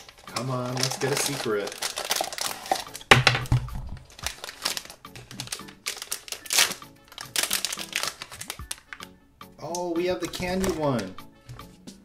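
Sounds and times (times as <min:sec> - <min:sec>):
foil bag crinkling: 0:00.0 - 0:03.2, 0:04.0 - 0:09.1, 0:10.3 - 0:11.1
light background music: 0:00.0 - 0:12.0.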